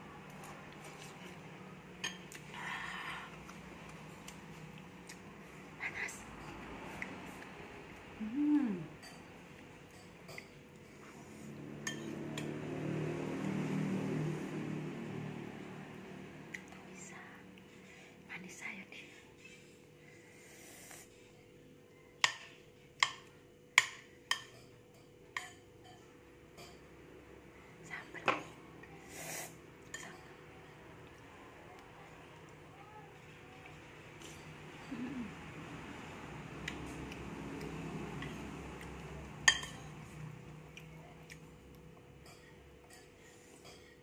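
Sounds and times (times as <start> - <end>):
metal spoon clinking on plate: 11.8 - 12.5, 39.4 - 40.0.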